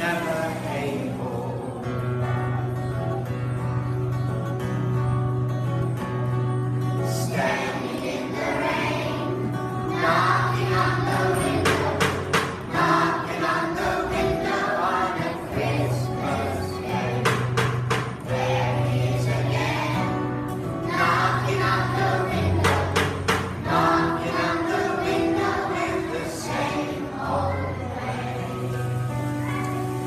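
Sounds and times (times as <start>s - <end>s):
children's choir singing: 0.0s - 4.1s, 7.0s - 30.0s
acoustic guitar: 0.0s - 30.0s
sharp percussive hits: 11.4s - 12.8s, 17.2s - 18.3s, 22.6s - 23.7s.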